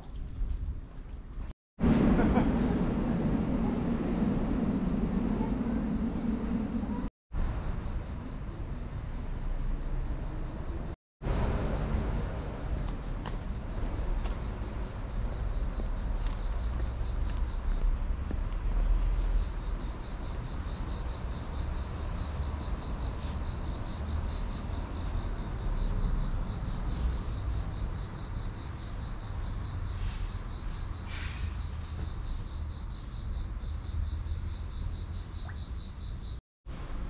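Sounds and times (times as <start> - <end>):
low rumble: 1.8 - 7.1
insects chorus: 2.1 - 37.0.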